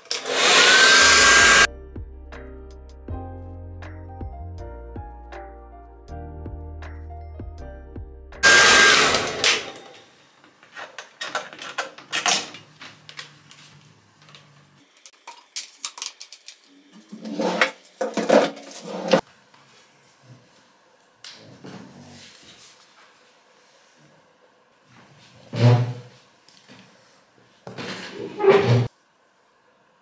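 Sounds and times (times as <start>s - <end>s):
hair dryer rush of noise: 0.0s - 1.7s, 8.4s - 9.9s.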